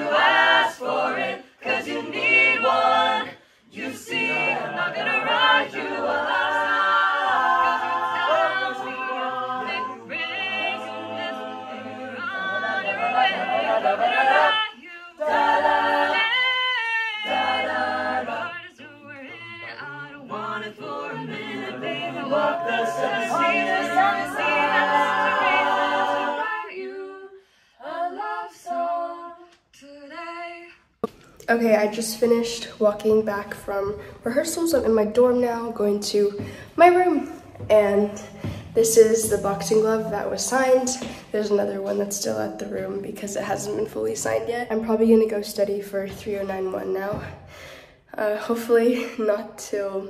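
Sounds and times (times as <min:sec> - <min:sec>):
a cappella group singing: 0:00.0 - 0:31.2, 0:36.2 - 0:44.4.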